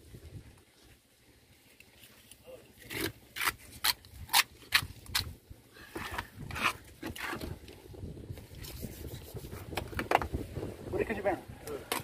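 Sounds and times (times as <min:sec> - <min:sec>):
knife scraping along fish backbone: 0:05.9 - 0:07.5.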